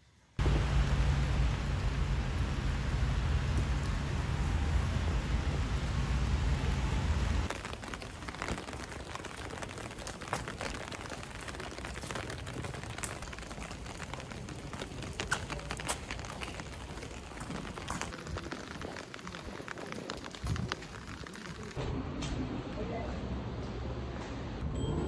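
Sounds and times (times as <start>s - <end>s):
hiss of wet street: 0.4s - 7.5s
loud low rumble: 0.4s - 7.5s
rain on plastic umbrella: 0.4s - 21.8s.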